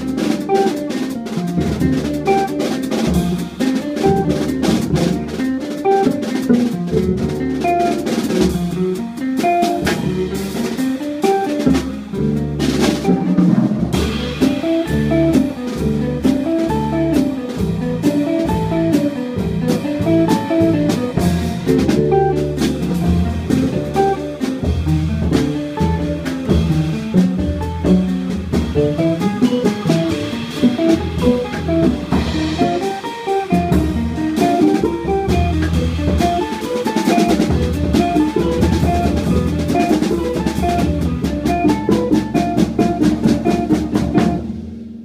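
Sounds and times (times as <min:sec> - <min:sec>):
drum kit with cymbals: 0:00.0 - 0:45.0
electric guitar picking: 0:00.0 - 0:45.0
plucked double bass: 0:00.0 - 0:45.0.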